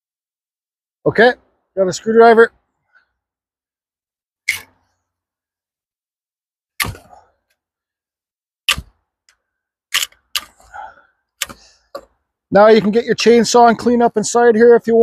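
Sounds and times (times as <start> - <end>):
sharp wooden knocks and cracks: 6.8 - 7.3, 8.7 - 9.0, 9.9 - 10.6, 11.4 - 12.2.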